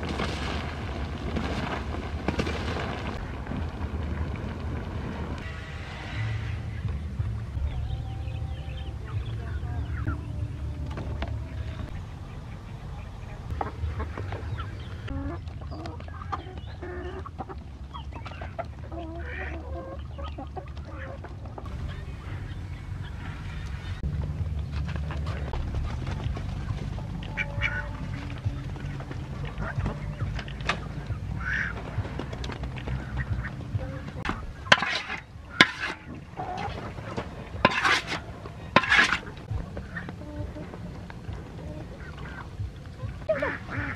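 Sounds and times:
low rumble: 0.0 - 43.9
ducks quacking: 5.4 - 24.1, 24.7 - 43.9
chickens clucking: 5.4 - 43.9
wooden spatula scraping metal basin: 34.2 - 39.5.

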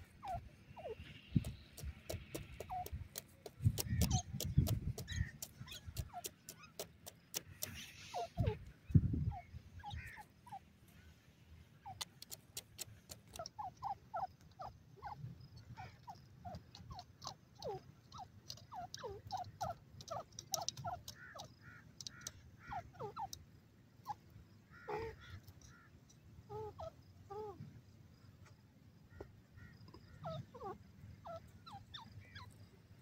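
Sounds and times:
sharp clicks: 1.3 - 7.8, 12.0 - 13.5, 18.4 - 22.4.

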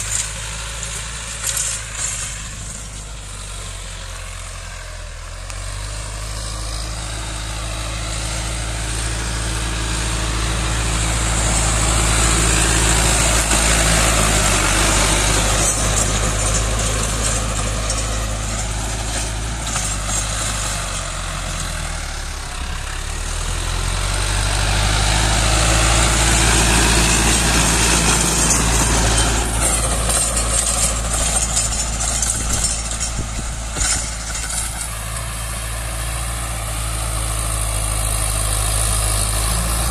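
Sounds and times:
tiller churning soil: 0.0 - 39.9
tractor engine under load: 0.0 - 39.9.

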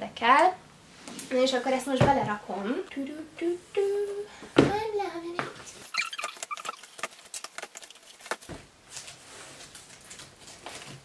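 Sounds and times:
fabric and plastic rustling: 5.5 - 11.0
plastic crackles and clicks: 6.0 - 11.0.

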